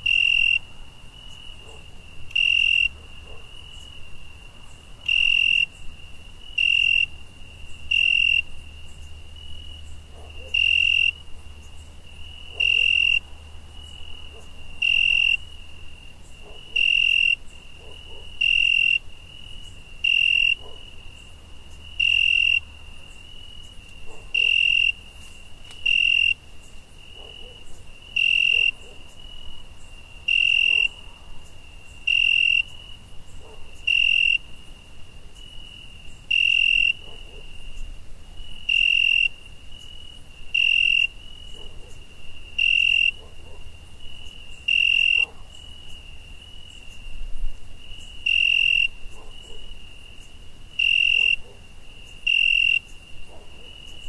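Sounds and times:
crickets chirping: 0.0 - 54.0.

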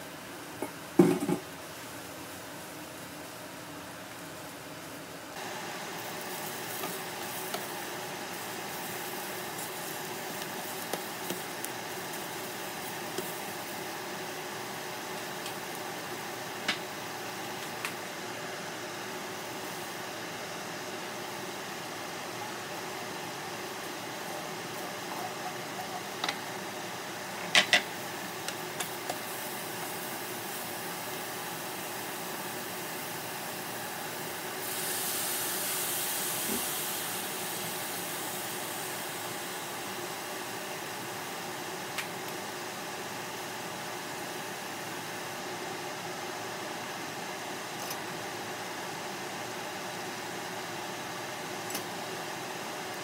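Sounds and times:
steady hiss: 0.0 - 53.0
liquid sizzling in hot pot: 5.4 - 25.0, 26.1 - 45.5.

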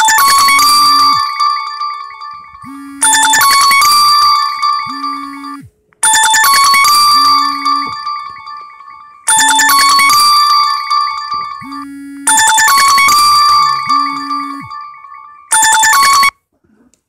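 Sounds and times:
bell-like ringtone chime: 0.0 - 16.4
low hum: 0.6 - 6.0, 6.9 - 9.3, 10.3 - 15.5.

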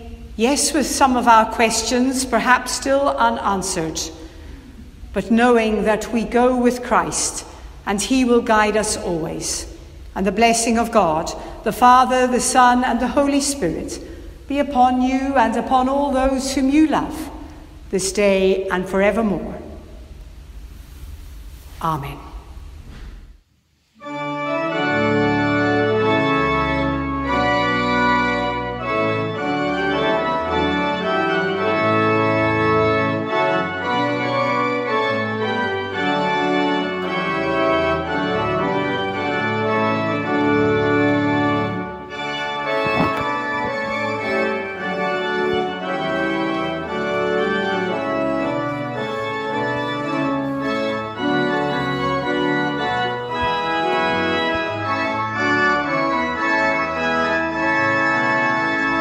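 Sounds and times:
organ chords: 23.9 - 59.0.

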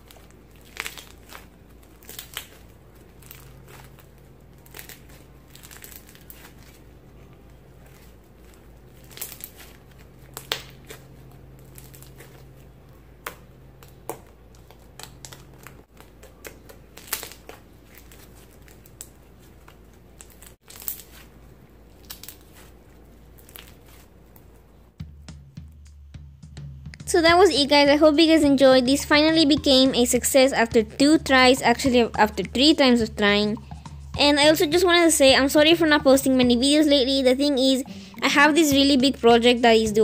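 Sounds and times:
dried slime crackling: 0.0 - 24.9
faint low hum: 0.0 - 25.0.

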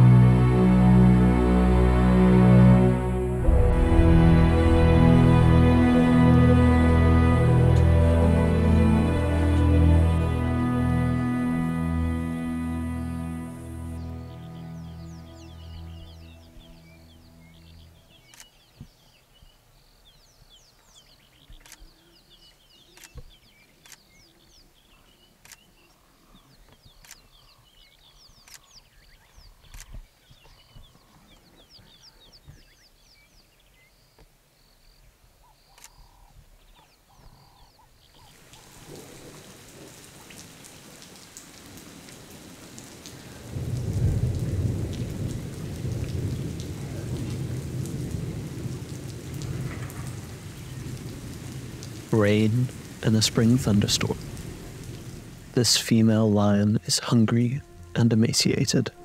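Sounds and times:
rain falling: 0.0 - 19.0, 37.1 - 59.0
rolling thunder: 3.4 - 6.4, 41.6 - 52.1
faint bird chirps: 14.3 - 38.8
sharp clicks: 23.0 - 24.1, 29.7 - 30.0.

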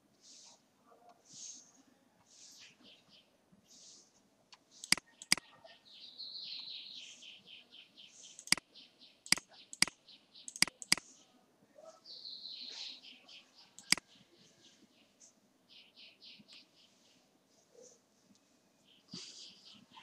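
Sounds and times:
bird chirping: 4.7 - 20.0
computer mouse clicking: 4.8 - 5.4, 8.4 - 8.7, 9.3 - 11.1, 13.8 - 14.0.

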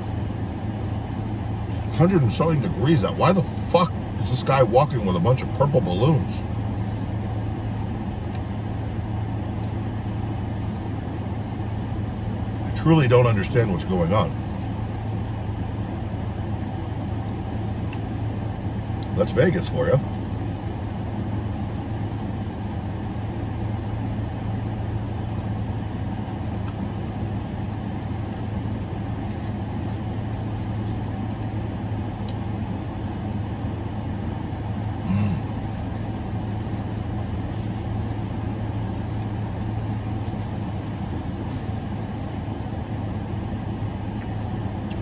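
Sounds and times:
car idling with fan running: 0.0 - 45.0
person humming: 35.0 - 35.5.

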